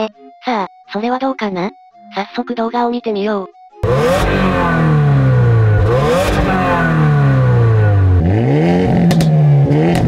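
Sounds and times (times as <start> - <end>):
car engine revving: 3.8 - 10.0
second car engine revving: 3.8 - 10.0.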